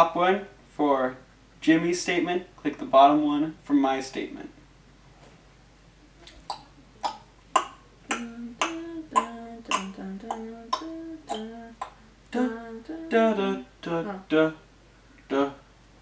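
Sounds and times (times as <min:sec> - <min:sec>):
person humming a tune: 0:06.4 - 0:14.6.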